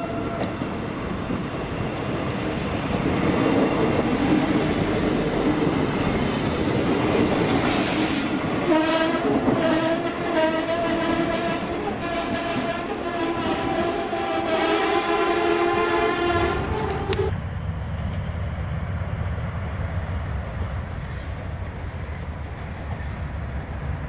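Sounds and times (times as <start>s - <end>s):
diesel railcar passing at speed: 0.0s - 24.0s
short hiss: 7.6s - 8.3s
train horn blasts: 8.6s - 17.3s.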